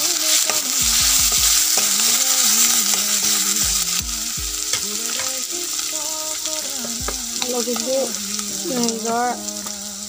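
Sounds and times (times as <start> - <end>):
food sizzling in hot oil: 0.0 - 10.0
spatula knocking against pan: 6.9 - 7.5.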